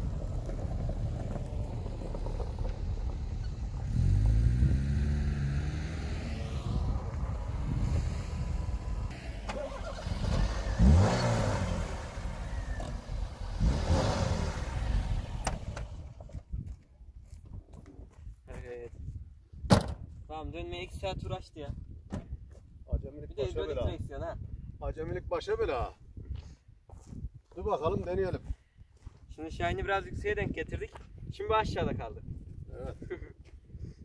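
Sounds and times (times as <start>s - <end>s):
car engine revving: 0.0s - 16.1s.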